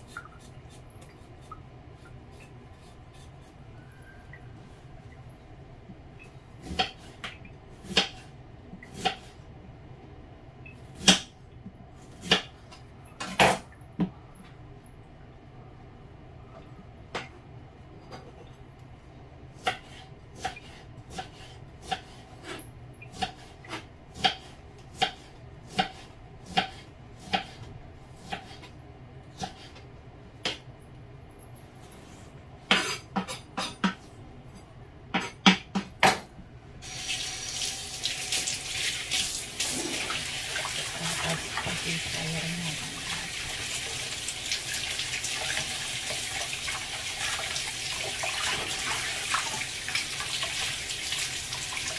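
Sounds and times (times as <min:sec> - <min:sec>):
knife chopping on wooden board: 0:19.6 - 0:27.6, 0:28.2 - 0:28.7
greens rinsed by hand: 0:36.8 - 0:51.9
tap water running into steel bowl: 0:43.0 - 0:51.9.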